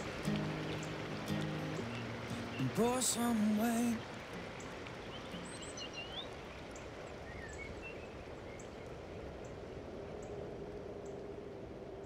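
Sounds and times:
stream rushing: 0.0s - 12.0s
bird chirps: 1.7s - 4.0s.

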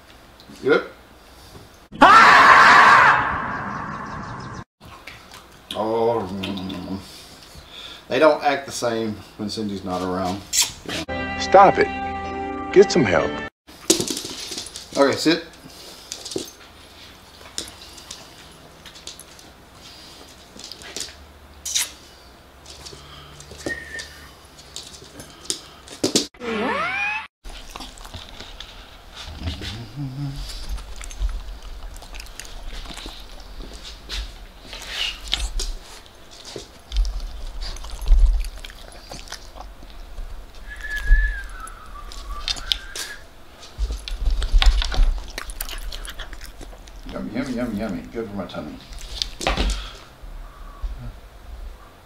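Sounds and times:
dog claws clicking on wooden floor: 13.8s - 16.6s, 17.4s - 19.5s
dog licking and lip smacking: 34.8s - 40.0s, 45.1s - 47.1s.

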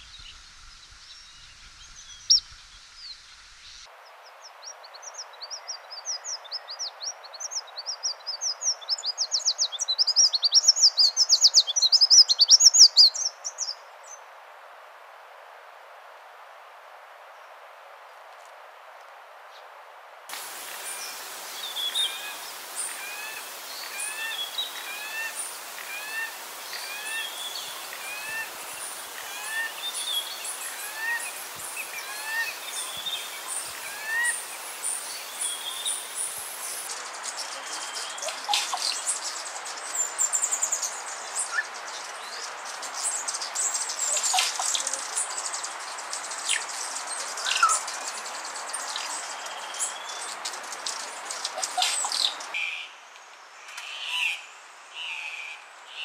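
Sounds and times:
high bird chirps and calls: 20.3s - 36.9s.

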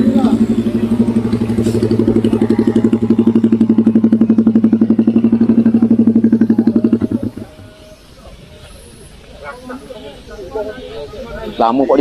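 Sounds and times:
motorcycle engine running: 0.0s - 8.0s.

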